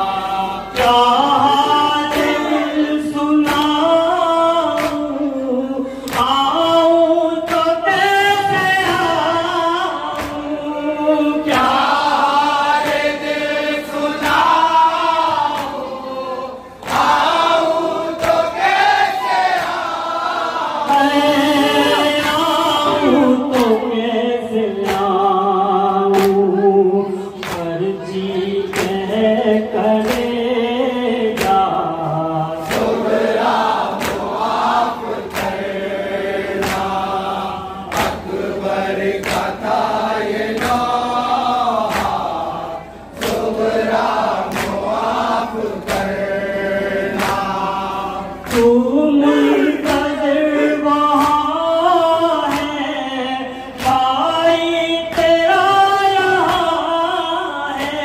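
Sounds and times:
rhythmic chest slapping: 0.0s - 26.6s, 27.4s - 58.0s
male voices chanting a lament: 0.0s - 58.0s.

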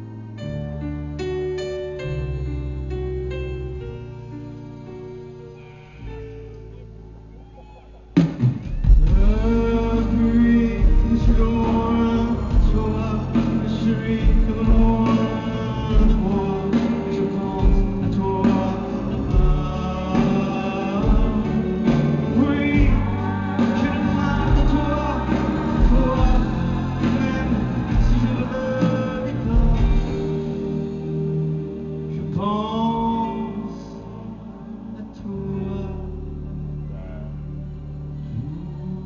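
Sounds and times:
live rock band playing: 8.2s - 32.9s
man singing: 8.9s - 37.6s.

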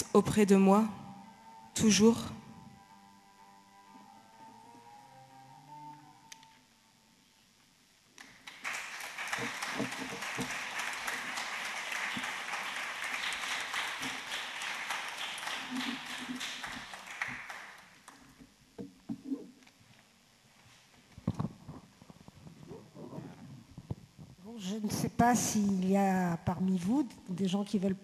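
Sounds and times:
audience applauding: 8.2s - 18.3s.

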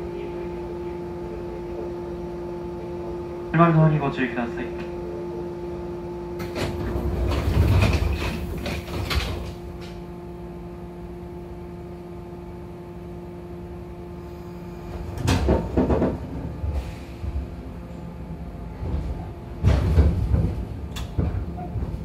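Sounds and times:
train rumbling and clunking: 0.0s - 10.9s, 14.8s - 22.0s
steady electric hum: 0.0s - 16.6s
train sliding doors shutting: 4.8s - 10.1s, 14.2s - 22.0s.

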